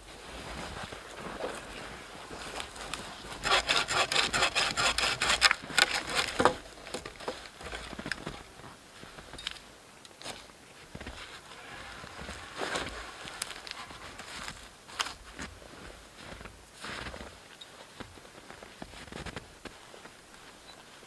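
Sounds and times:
bow saw cutting log: 3.4s - 7.1s
faint knocks and rustles: 5.4s - 11.4s.

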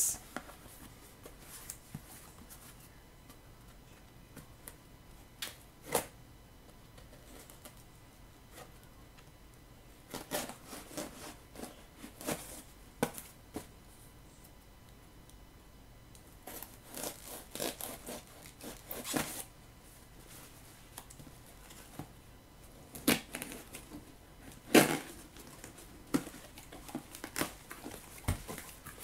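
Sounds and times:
cardboard and bubble wrap rustling: 22.9s - 29.0s.

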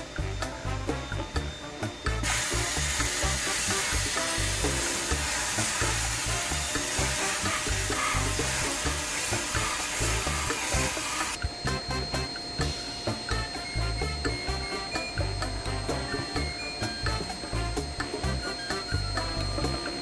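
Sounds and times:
background music: 0.0s - 20.0s
sandblaster hissing: 1.4s - 11.4s.

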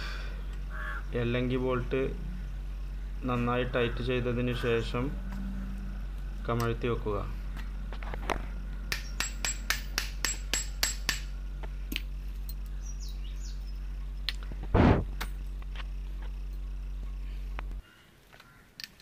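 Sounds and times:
steady low hum: 0.0s - 17.8s
sharp metallic knocks: 8.9s - 11.3s
heavy thud: 14.7s - 15.2s.

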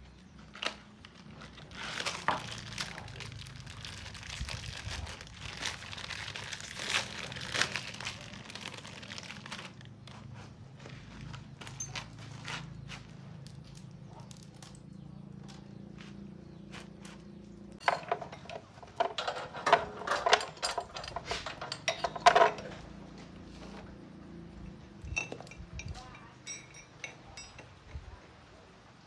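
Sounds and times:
metal tools clinking: 11.6s - 12.3s, 17.8s - 23.1s, 24.6s - 28.0s.

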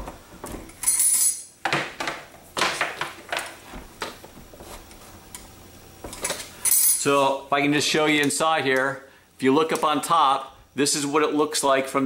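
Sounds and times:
ringing metallic clink: 0.8s - 1.5s, 6.6s - 7.0s.

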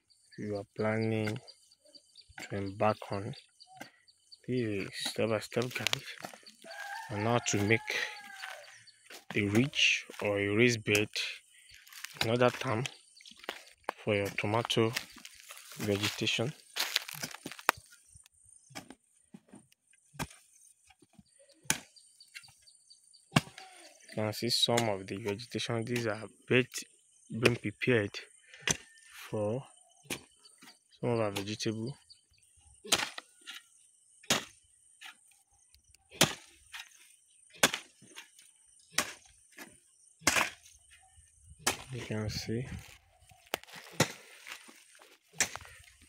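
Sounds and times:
knocks and scrapes of earth: 2.3s - 25.4s, 32.8s - 46.0s
hoe striking soil: 11.9s - 12.9s, 23.3s - 23.6s, 32.8s - 33.6s, 34.2s - 35.2s, 36.1s - 40.7s, 41.6s - 42.1s, 43.5s - 46.0s.

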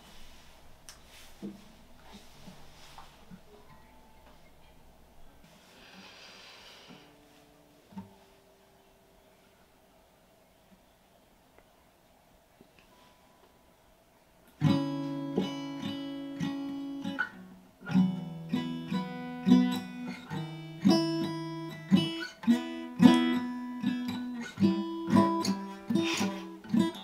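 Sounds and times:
acoustic guitar chords: 14.6s - 27.0s.

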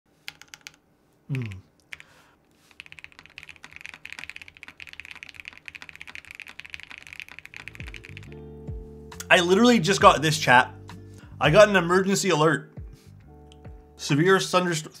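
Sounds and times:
fast typing on mechanical keyboard: 0.3s - 0.8s, 1.4s - 8.4s.

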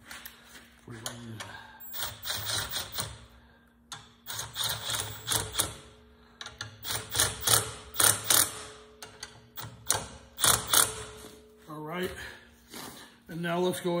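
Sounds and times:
hand tool clicking and ratcheting: 1.9s - 3.2s, 3.9s - 5.8s, 6.4s - 11.2s.

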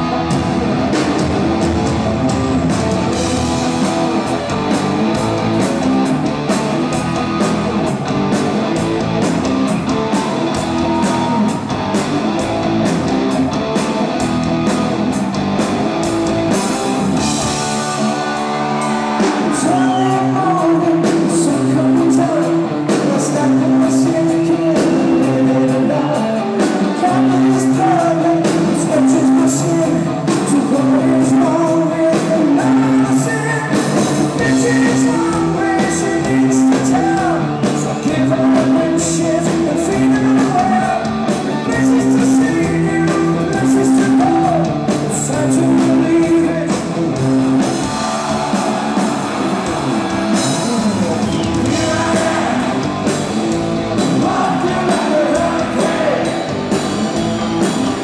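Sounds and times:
bass guitar: 0.0s - 58.0s
distorted electric guitars: 0.0s - 58.0s
drums: 0.0s - 58.0s
person singing: 18.0s - 46.9s, 48.3s - 53.2s, 54.0s - 56.5s.

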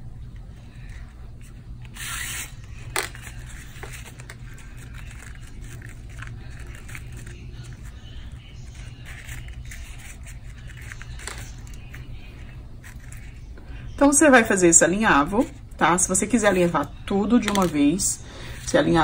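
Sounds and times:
low steady hum: 0.0s - 19.0s
ribbon rustling: 0.5s - 13.8s.

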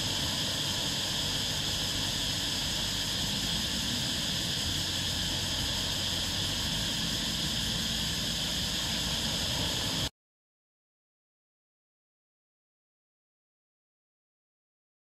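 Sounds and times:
small waves washing on beach: 0.0s - 10.1s.

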